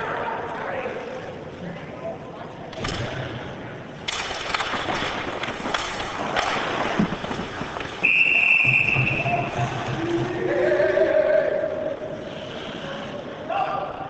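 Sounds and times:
hockey sticks clacking: 0:04.0 - 0:10.4
skates on ice: 0:04.1 - 0:10.6
referee whistle long blast: 0:08.0 - 0:09.4
voices shouting: 0:09.2 - 0:12.1.

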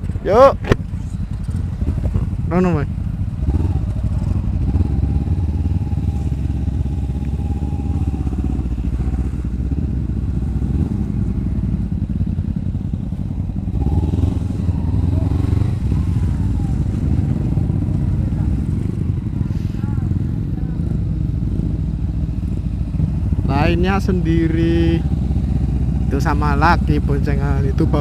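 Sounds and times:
motorcycle engine running: 0:00.0 - 0:28.0
other motorcycles running: 0:00.0 - 0:28.0.

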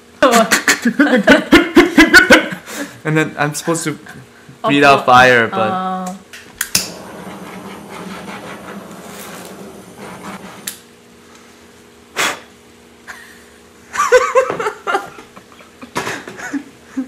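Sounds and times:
laughter: 0:00.4 - 0:03.0, 0:13.1 - 0:17.0
kitchen torch hissing: 0:06.7 - 0:11.0.

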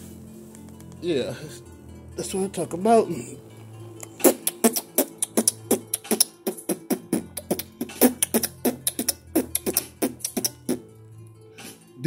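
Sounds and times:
low sustained bass: 0:00.0 - 0:04.2.

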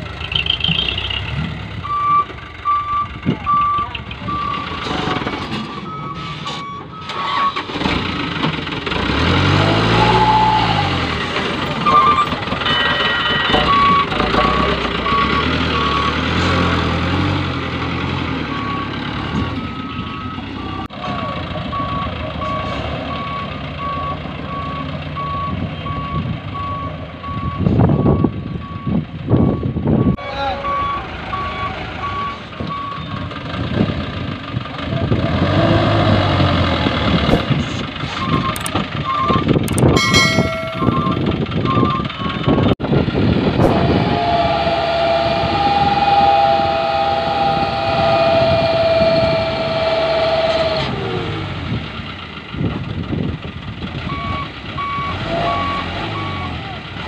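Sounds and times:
diesel engine running: 0:00.0 - 0:57.0
reversing alarm beeping: 0:11.8 - 0:16.2, 0:38.2 - 0:42.4, 0:54.1 - 0:56.6.

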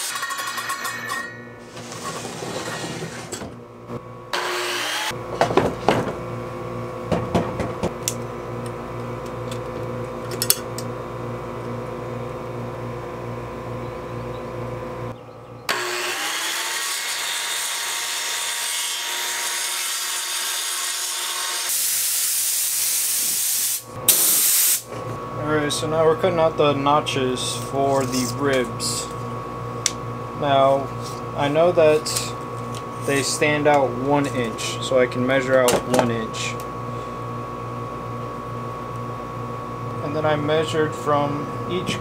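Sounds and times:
circular saw cutting plywood: 0:04.3 - 0:05.2, 0:15.7 - 0:23.3.

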